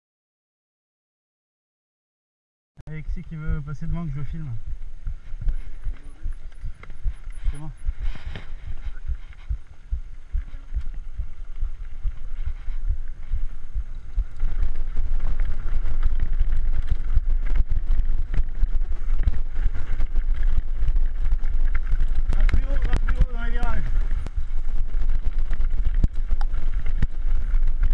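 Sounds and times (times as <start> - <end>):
bike rattling: 2.9 - 27.9
wind buffeting microphone: 2.9 - 27.9
tyres crackling over gravel: 10.7 - 27.9.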